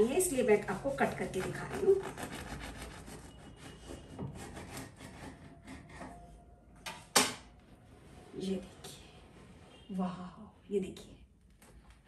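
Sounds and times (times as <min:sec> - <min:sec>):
knife sawing through bread crust: 0:00.6 - 0:06.1.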